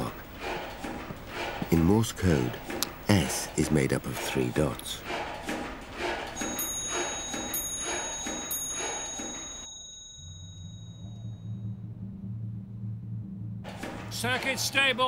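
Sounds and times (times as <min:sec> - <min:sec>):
clock bell strokes: 0:06.4 - 0:11.8
low pulsing hum: 0:10.0 - 0:14.7.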